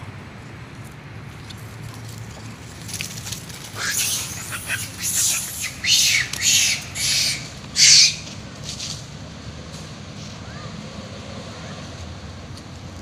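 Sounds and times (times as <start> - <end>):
macaques screaming: 3.7 - 8.4.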